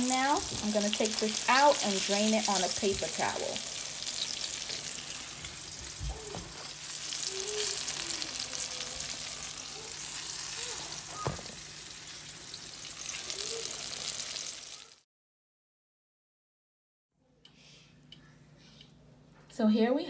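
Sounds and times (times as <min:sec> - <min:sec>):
fish frying in oil: 0:00.0 - 0:15.0.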